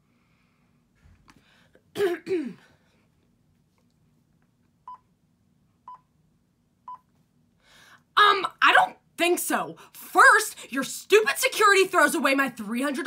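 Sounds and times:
woman clearing her throat: 2.0s - 2.7s.

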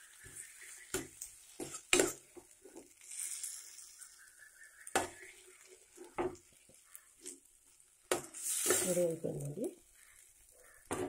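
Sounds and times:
faint frying hiss: 0.0s - 11.0s
steel spoon scraping metal pan: 3.0s - 4.1s.

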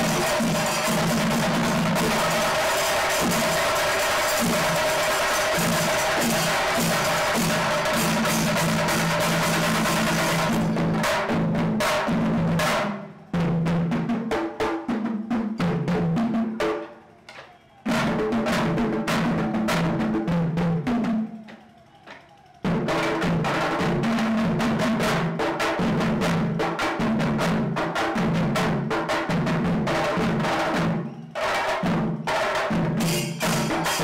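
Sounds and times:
hand cymbals clashing: 0.0s - 10.9s, 32.9s - 34.0s
drums beaten with sticks: 0.0s - 34.0s.

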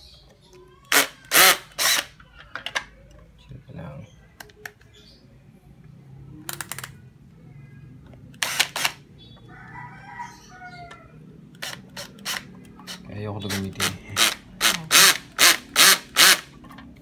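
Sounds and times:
cordless drill driving screws: 0.9s - 2.1s, 14.2s - 16.4s.

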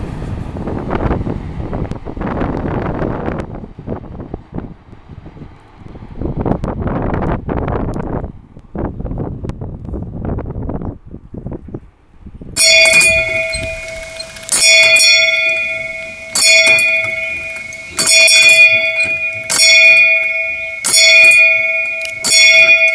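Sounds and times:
wind noise on microphone: 0.0s - 22.9s
brass bell clanging: 12.6s - 22.9s.

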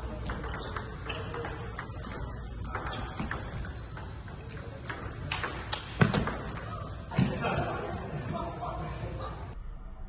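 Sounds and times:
ball clicking off paddles: 0.2s - 6.8s
ball bouncing on table: 0.2s - 7.3s.

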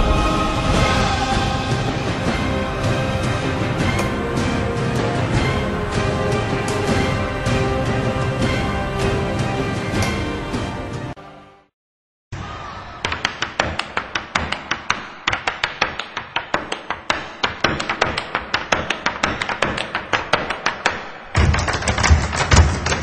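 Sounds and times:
music: 0.0s - 11.7s.

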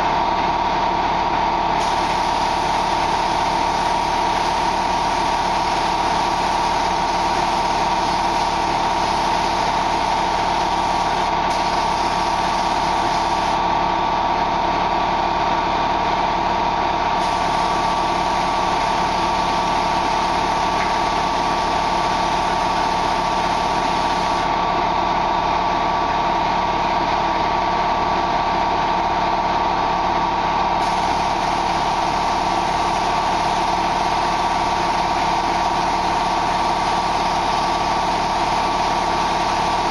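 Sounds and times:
spray painting equipment droning: 1.8s - 13.6s, 17.2s - 24.5s, 30.8s - 39.9s.

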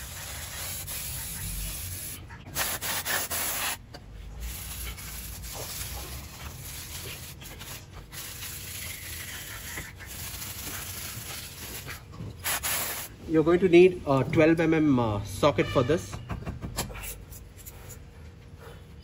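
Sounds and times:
aerosol spray hissing: 0.0s - 3.8s.

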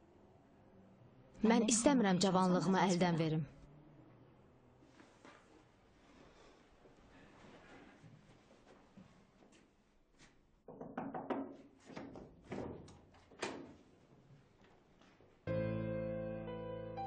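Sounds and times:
sad piano music: 15.5s - 17.0s.

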